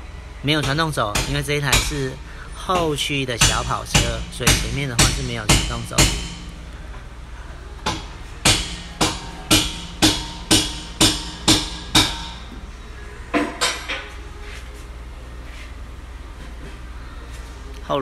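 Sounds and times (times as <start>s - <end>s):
hammer blows on metal: 2.7s - 6.6s, 7.8s - 12.6s.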